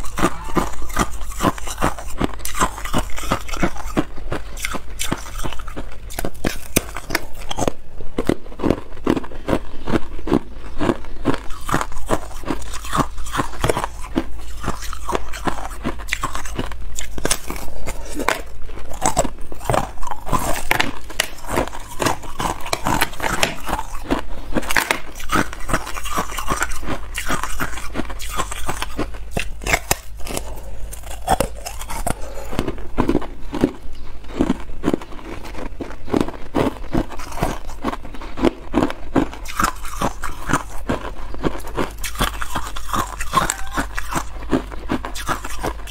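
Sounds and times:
ice crunching between teeth: 0:00.0 - 0:45.9.

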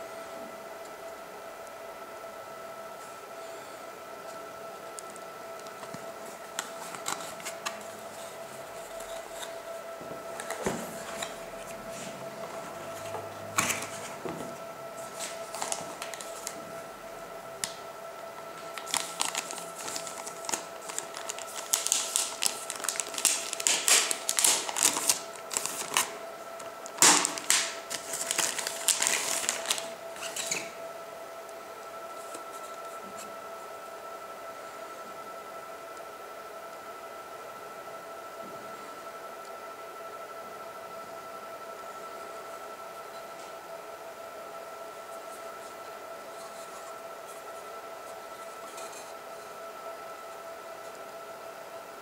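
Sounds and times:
steady high-pitched whine: 0:00.0 - 0:52.0
plastic bag crinkling: 0:18.6 - 0:26.2, 0:26.8 - 0:30.7.

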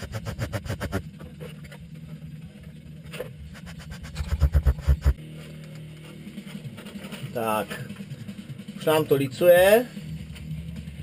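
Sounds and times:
low hum: 0:00.0 - 0:07.2.

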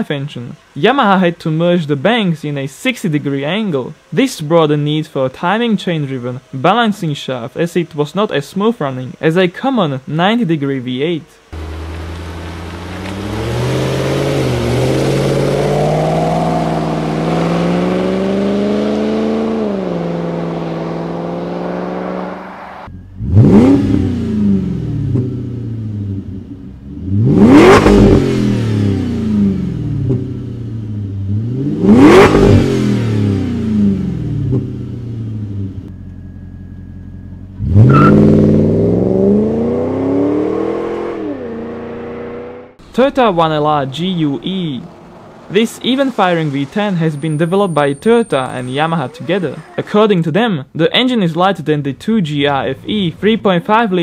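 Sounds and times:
car engine running and revving: 0:11.0 - 0:50.0.

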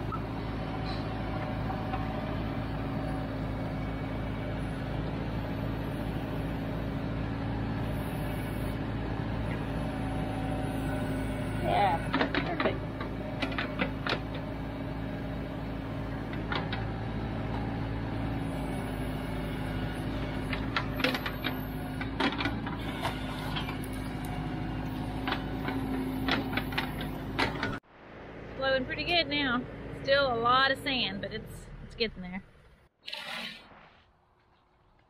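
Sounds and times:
tractor diesel engine running: 0:00.0 - 0:33.0
backhoe bucket clanks and knocks: 0:12.1 - 0:14.5.

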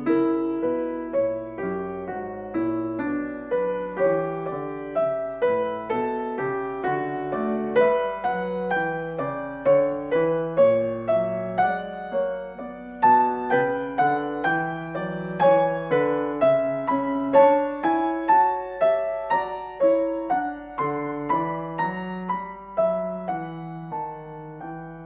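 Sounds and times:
gentle piano melody: 0:00.0 - 0:25.0.

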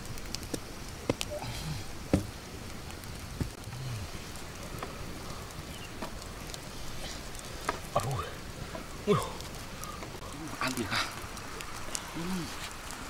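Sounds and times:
campfire crackling and popping: 0:00.0 - 0:13.0.

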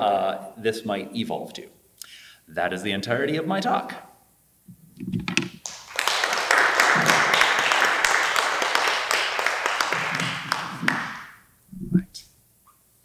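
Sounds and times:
audience applauding: 0:05.6 - 0:11.4.

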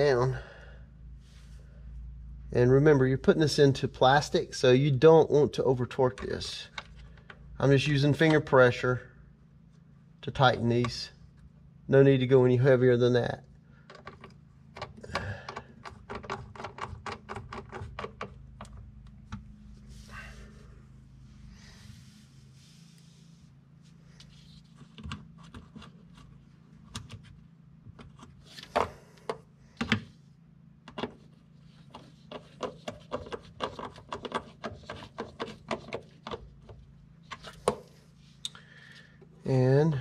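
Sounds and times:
steady low hum: 0:00.0 - 0:40.0.

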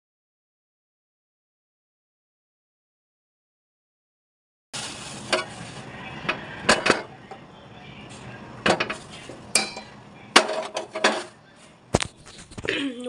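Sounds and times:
plastic bag crinkling: 0:04.8 - 0:05.9.

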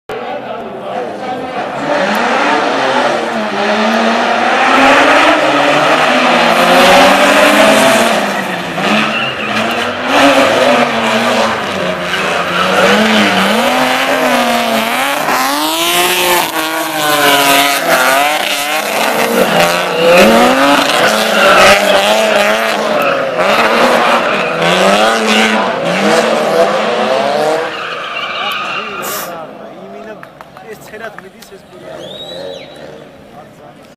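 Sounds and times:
car engines revving: 0:00.1 - 0:33.9
tyres squealing: 0:06.2 - 0:23.4, 0:27.4 - 0:29.4.

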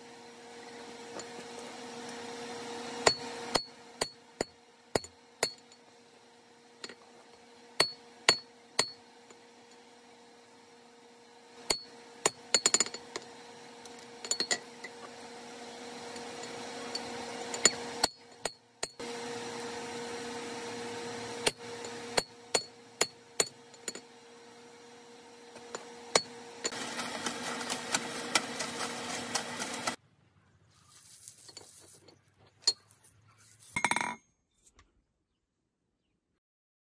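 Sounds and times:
hammer striking metal on anvil: 0:03.0 - 0:05.8, 0:07.8 - 0:09.2, 0:11.6 - 0:13.1, 0:21.4 - 0:24.0.

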